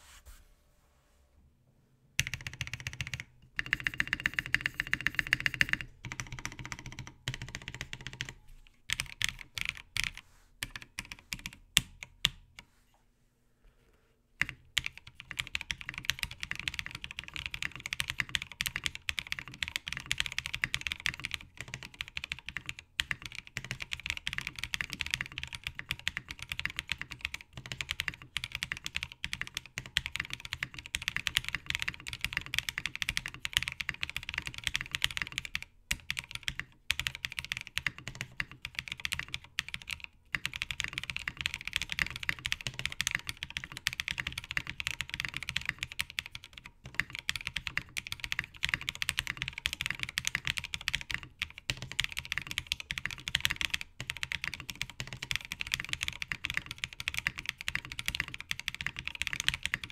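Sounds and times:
mechanical keyboard typing: 2.2 - 12.4, 14.4 - 59.9.

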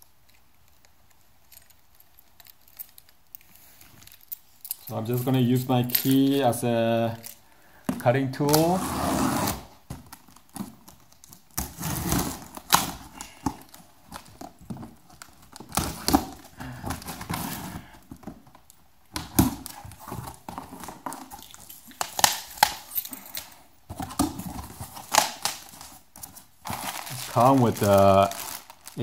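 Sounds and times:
cardboard flaps scraping and rustling: 8.4 - 10.8, 11.6 - 18.5, 23.9 - 29.0.

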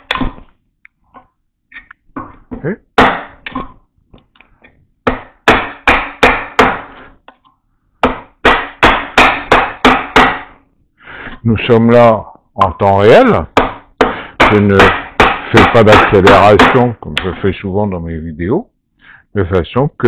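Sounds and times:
mallet striking chisel: 0.0 - 0.6, 2.2 - 3.8, 5.0 - 7.4, 8.0 - 10.6, 13.6 - 17.4.

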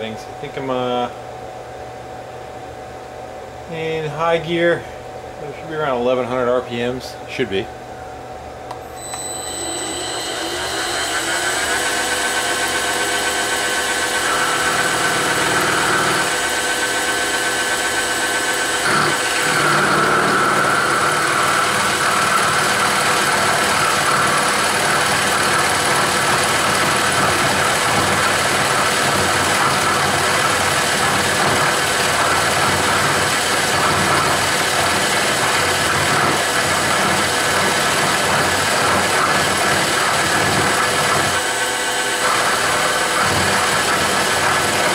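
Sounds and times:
milling machine spindle motor running: 9.6 - 44.9.

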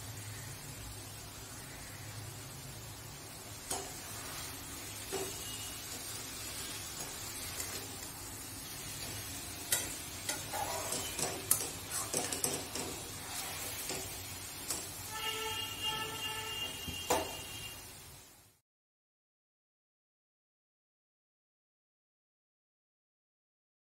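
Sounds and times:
food sizzling: 0.0 - 18.6
spatula scraping a steel pan: 8.7 - 15.3.

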